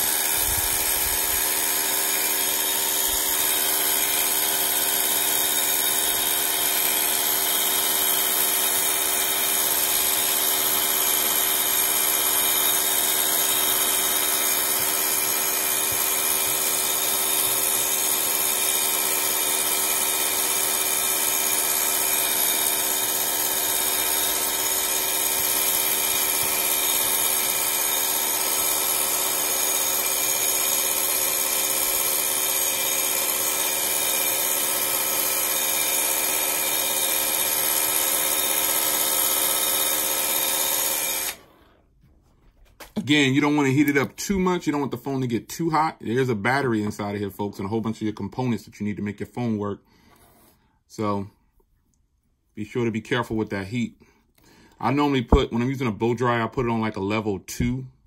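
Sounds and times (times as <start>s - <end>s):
hair dryer blowing air: 0.0s - 6.8s.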